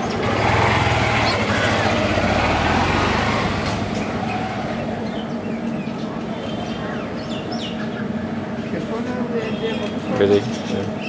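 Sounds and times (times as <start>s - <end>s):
small engine running: 0.0s - 5.3s
steady low hum: 0.0s - 11.0s
bird chirps: 3.9s - 8.8s, 9.4s - 11.0s.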